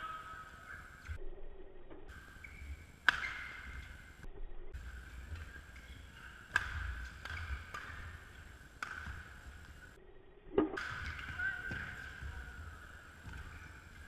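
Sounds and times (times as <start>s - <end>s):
racket hitting shuttlecock: 2.9s - 4.1s, 5.3s - 9.8s, 10.7s - 12.4s.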